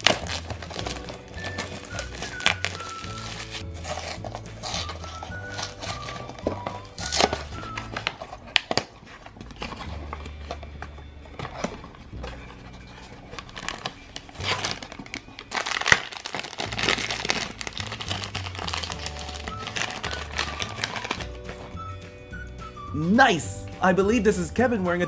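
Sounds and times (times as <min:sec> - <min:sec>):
cardboard box tearing: 0:00.0 - 0:08.9, 0:13.4 - 0:21.3
foil bag rustling and tearing: 0:00.0 - 0:09.8, 0:12.7 - 0:21.4
background music: 0:00.0 - 0:25.0.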